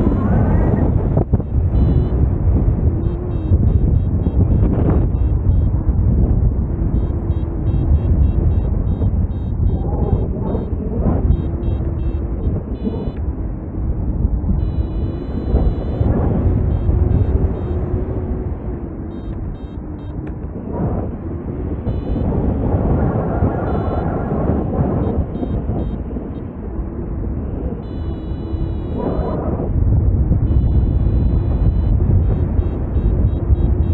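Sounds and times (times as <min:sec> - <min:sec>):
variometer beeping high tones: 0:00.0 - 0:05.8, 0:06.9 - 0:13.2, 0:14.6 - 0:18.1, 0:19.1 - 0:20.2, 0:21.9 - 0:22.6, 0:23.4 - 0:26.0, 0:27.8 - 0:29.4, 0:30.4 - 0:33.9
wind rushing over microphone: 0:00.0 - 0:33.9.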